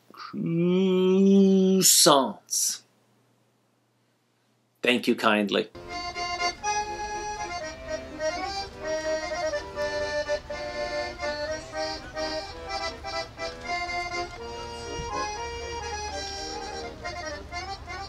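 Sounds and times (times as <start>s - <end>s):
instrumental background music: 5.8s - 18.0s.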